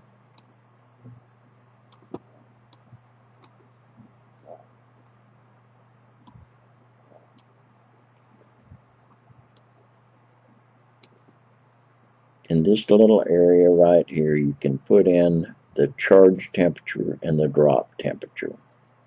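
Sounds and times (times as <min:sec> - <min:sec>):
low steady hum: 0:00.0 - 0:19.0
computer mouse clicks: 0:01.9 - 0:03.7, 0:11.0 - 0:11.4.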